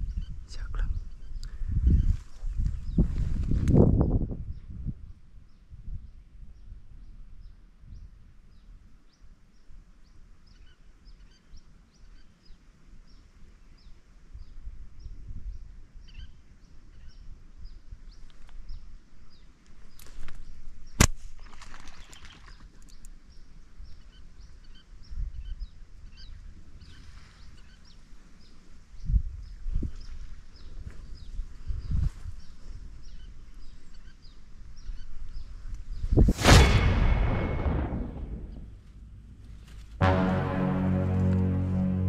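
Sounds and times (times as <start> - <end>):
sharp crack: 21.0 - 21.3, 36.2 - 42.0
low rumble: 36.3 - 42.0.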